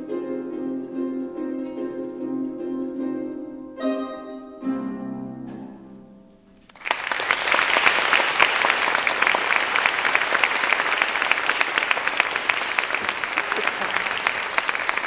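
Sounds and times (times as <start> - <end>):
harp ensemble chord: 0.0 - 6.1
audience applause: 6.7 - 15.0.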